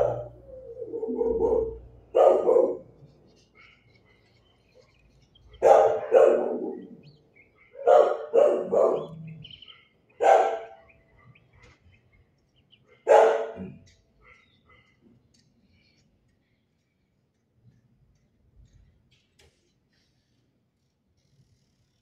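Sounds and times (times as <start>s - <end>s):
dog barking: 0.0s - 3.0s, 5.6s - 7.0s, 7.6s - 11.4s, 12.9s - 15.0s.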